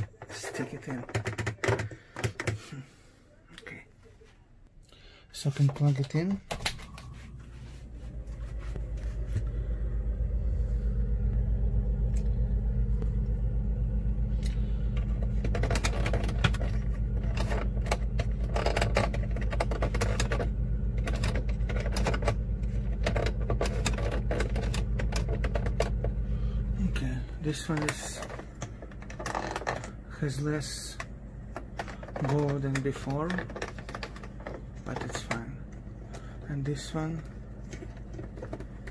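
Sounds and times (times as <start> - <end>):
refrigerator compressor hum: 0.0 - 38.9
handling clicks and rattles: 14.9 - 26.2, 27.0 - 38.9.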